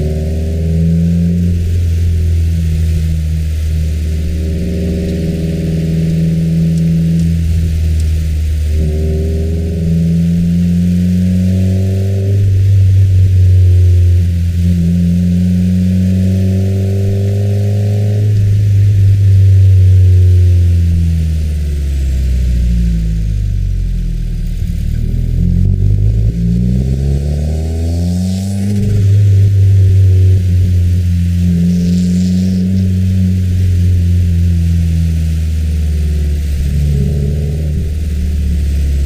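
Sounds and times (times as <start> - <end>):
car engine accelerating and cruising: 0.0 - 39.0.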